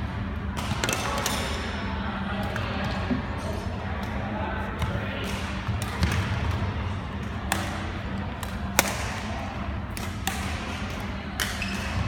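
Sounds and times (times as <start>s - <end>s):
steady low hum: 0.0s - 12.0s
racket hitting shuttlecock: 7.5s - 9.3s, 9.9s - 12.0s.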